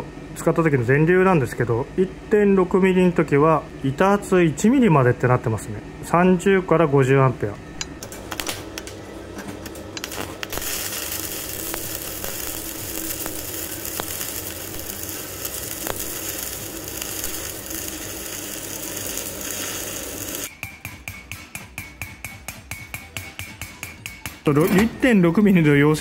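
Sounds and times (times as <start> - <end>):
welding arc crackling: 8.0 - 9.0, 9.8 - 20.5
rapid metallic tapping with ringing: 20.5 - 24.5.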